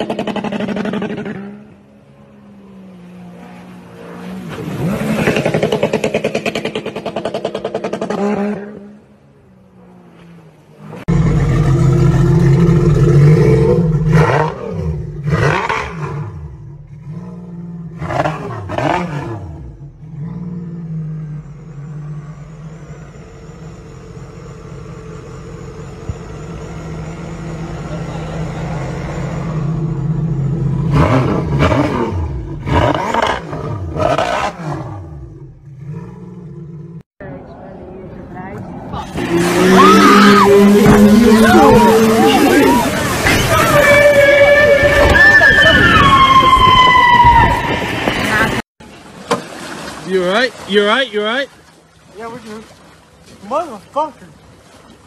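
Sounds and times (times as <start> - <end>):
jet ski engine revving: 0.0 - 9.2, 10.9 - 37.1, 39.0 - 46.2
jet ski speeding on water: 0.0 - 24.3, 25.5 - 47.1.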